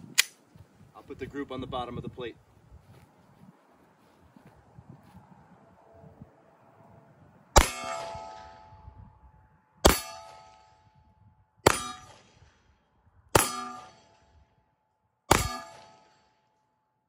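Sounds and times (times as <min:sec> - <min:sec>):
steel plate target clanging: 0:09.9 - 0:10.8
pistol shots: 0:13.3 - 0:14.1, 0:15.3 - 0:16.2.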